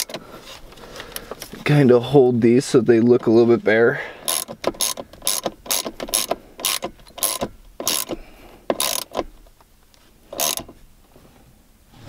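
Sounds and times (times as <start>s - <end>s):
ratcheting wrench clicking: 4.2s - 9.4s, 10.3s - 10.7s.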